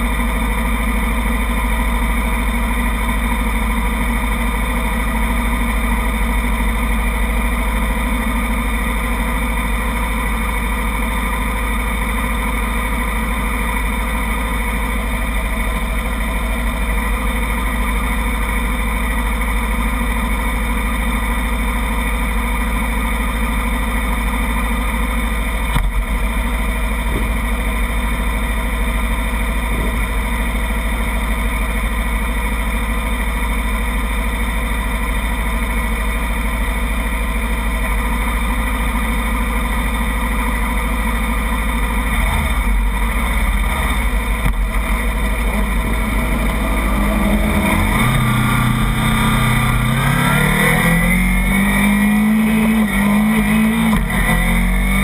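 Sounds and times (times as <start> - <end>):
motorcycles idling: 0.0 - 54.9
brief knock: 25.7 - 26.0.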